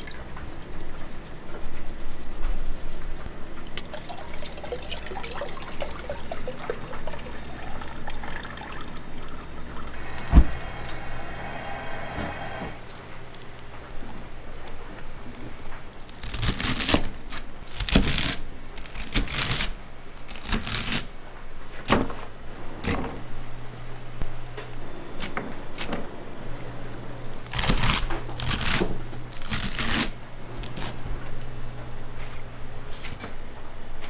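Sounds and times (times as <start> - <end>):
steady low hum: 0.0 - 17.8.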